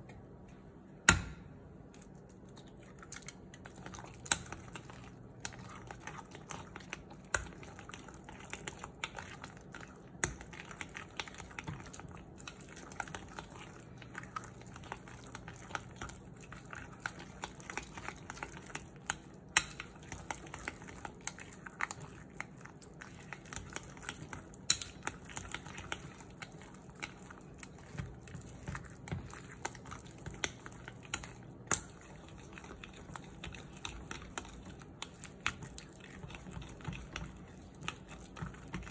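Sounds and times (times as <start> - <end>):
chopsticks beating batter in glass bowl: 2.0 - 38.9.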